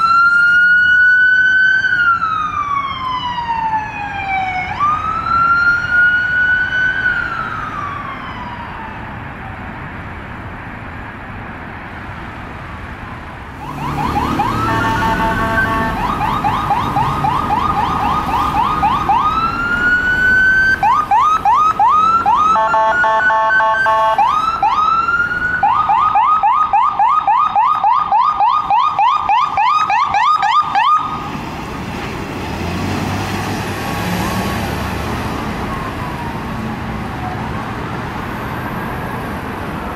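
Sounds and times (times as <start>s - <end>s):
emergency siren wailing and yelping: 0.0s - 9.6s, 13.6s - 31.3s, 33.8s - 39.1s
engine and traffic rumble: 0.0s - 39.9s
multi-tone horn blasts: 14.5s - 16.2s, 22.5s - 24.3s.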